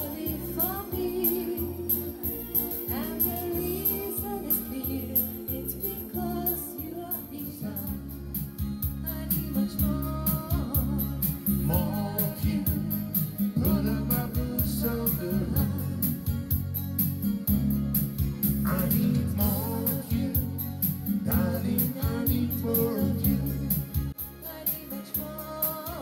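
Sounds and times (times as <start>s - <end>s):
person singing into microphone: 0.0s - 8.3s, 9.0s - 16.4s, 18.6s - 26.0s
electronic keyboard music with beat: 0.0s - 26.0s.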